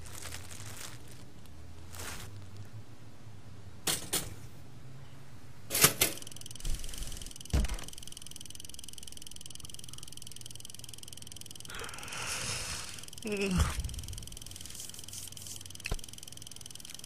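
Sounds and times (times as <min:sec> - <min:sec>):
toaster high hum: 0:05.7 - 0:17.0.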